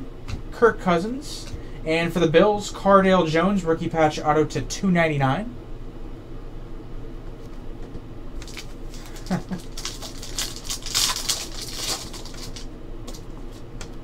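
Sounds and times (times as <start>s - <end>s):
steady low hum: 0.0s - 14.0s
foil wrapper crinkling: 8.4s - 13.7s
cards being handled: 8.4s - 14.0s.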